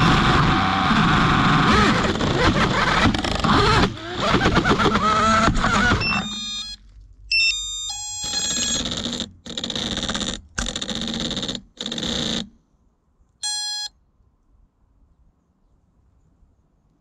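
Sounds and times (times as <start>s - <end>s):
quadcopter motors whining: 0.0s - 6.8s
stepped electronic beeps: 6.0s - 8.8s.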